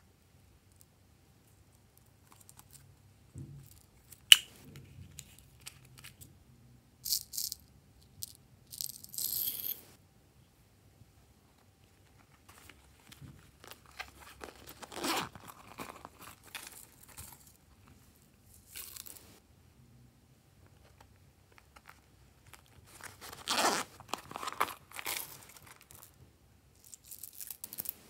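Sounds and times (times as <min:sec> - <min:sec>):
vinyl purses crinkling and rustling: 0:11.9 - 0:19.4, 0:20.8 - 0:26.2
zipper being pulled: 0:14.8 - 0:15.4, 0:23.2 - 0:23.9.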